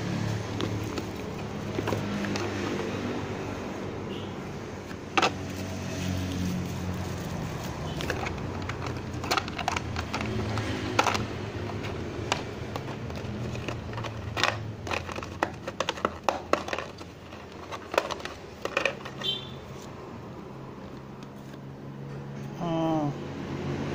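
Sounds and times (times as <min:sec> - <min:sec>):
plastic clicks and taps: 0:08.0 - 0:19.4.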